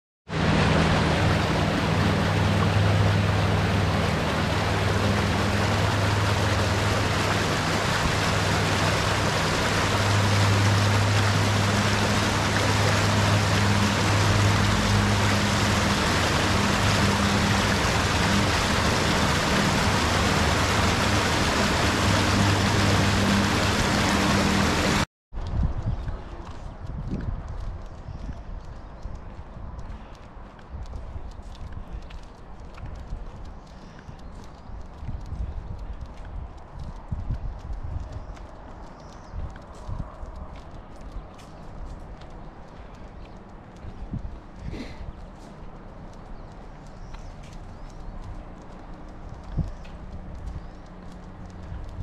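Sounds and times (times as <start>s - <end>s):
stream rushing and splashing: 0.3s - 25.1s
low steady hum: 0.3s - 26.8s.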